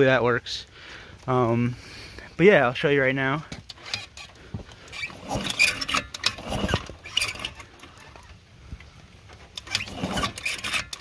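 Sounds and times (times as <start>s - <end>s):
engine cranking: 3.6s - 11.0s.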